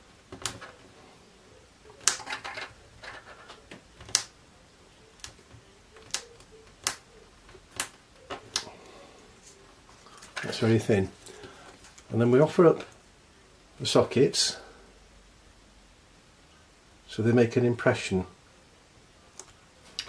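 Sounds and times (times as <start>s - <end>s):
sharp clicks and taps on plastic: 0.3s - 0.7s, 3.7s - 4.4s, 5.2s - 8.7s.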